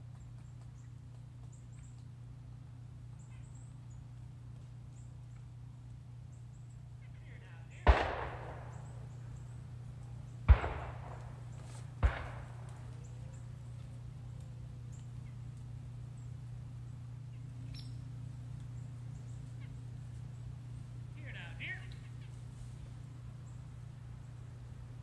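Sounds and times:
gunshots with echo: 7.8s - 9.0s, 10.5s - 12.8s.

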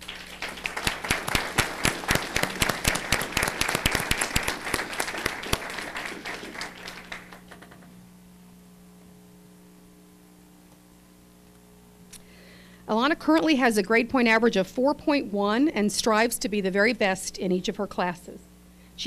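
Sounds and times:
audience applauding: 0.0s - 7.6s
close hand claps: 0.0s - 7.8s
faint steady hum: 0.0s - 19.0s.

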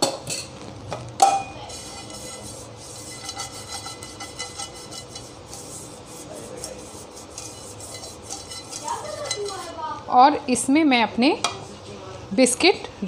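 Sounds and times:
pastry brush scratching frying pan: 1.3s - 10.0s.

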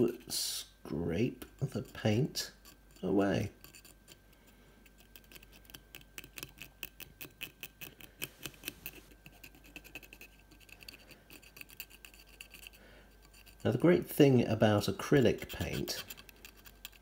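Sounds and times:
stick scratching paint off plastic: 4.9s - 10.7s, 15.2s - 17.0s.

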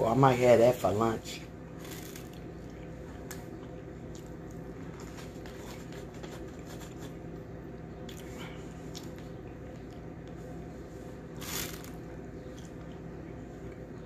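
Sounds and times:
steady low hum: 0.0s - 14.0s
person chewing food: 1.8s - 7.2s, 8.0s - 10.7s.

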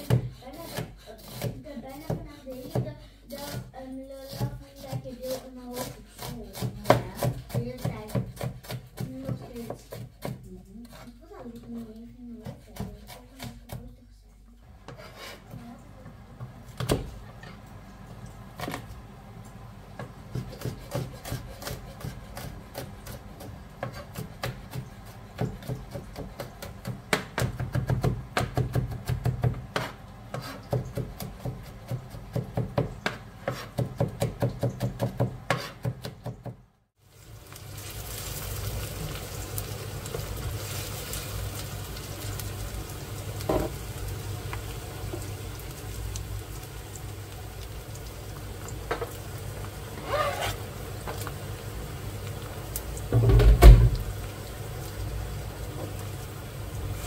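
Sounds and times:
knife chopping on plastic board: 0.0s - 3.7s, 4.3s - 11.0s, 20.0s - 36.6s.

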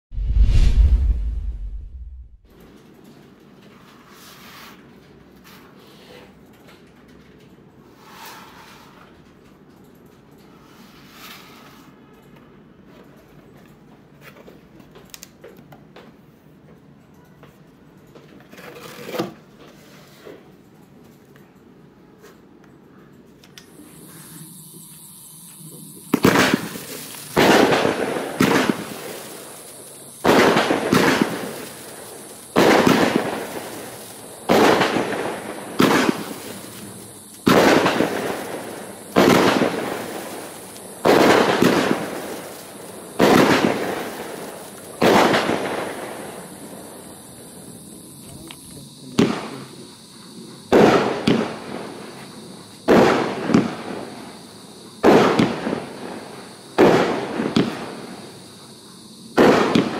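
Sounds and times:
fireworks bangs: 0.1s - 2.5s, 23.7s - 59.9s.

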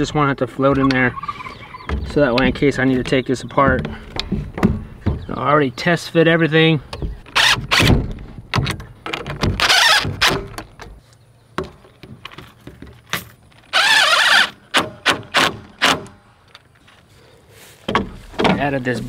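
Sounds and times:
cordless drill driving screws: 7.3s - 7.9s, 9.6s - 10.4s, 13.7s - 16.0s.

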